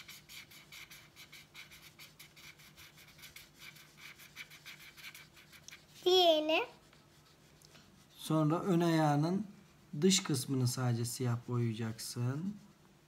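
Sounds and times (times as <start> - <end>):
marker scribbling on paper: 0.0 - 9.0.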